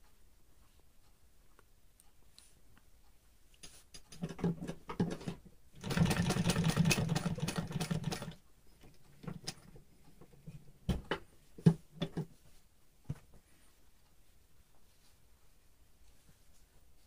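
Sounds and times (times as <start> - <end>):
sharp clicks and knocks: 3.6 - 5.5, 6.3 - 12.4
sewing machine stitching: 4.0 - 8.4.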